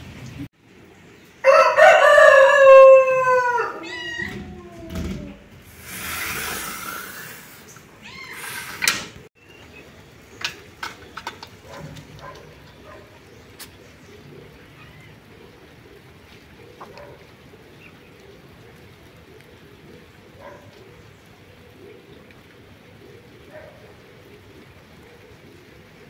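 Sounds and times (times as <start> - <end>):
rooster crowing: 1.4 - 4.8.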